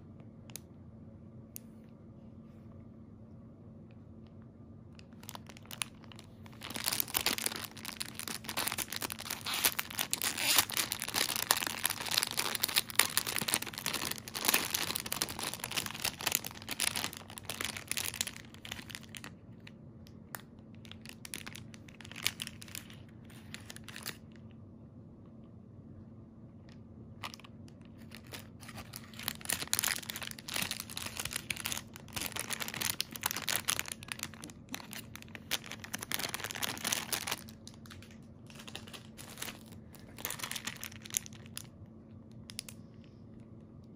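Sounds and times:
plastic bag crinkling: 5.0 - 19.7, 20.3 - 24.3, 27.2 - 41.7.

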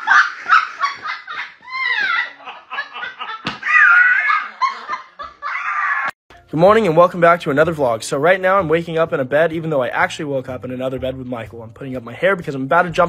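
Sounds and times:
people laughing uncontrollably: 0.0 - 6.1.

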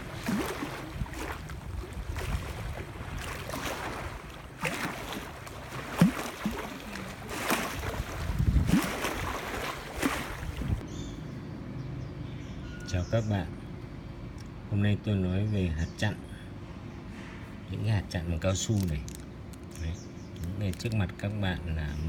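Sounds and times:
waves lapping on shore: 0.0 - 10.8
wind buffeting microphone: 0.0 - 11.0.

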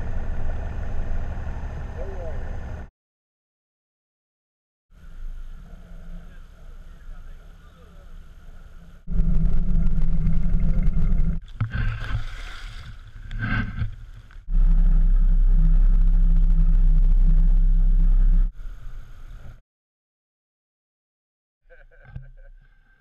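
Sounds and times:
boat motor rumbling: 0.0 - 2.9, 5.0 - 19.6.

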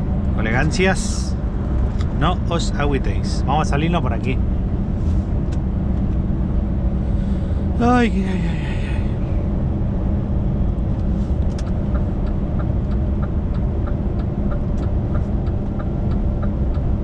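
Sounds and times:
lorry engine and road rumble: 0.0 - 17.0
turn signal ticking: 10.6 - 17.0.

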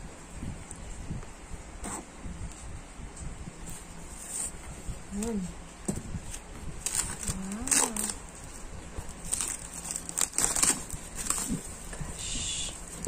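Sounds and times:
plastic shrink-wrap crinkling and tearing: 6.8 - 11.9.

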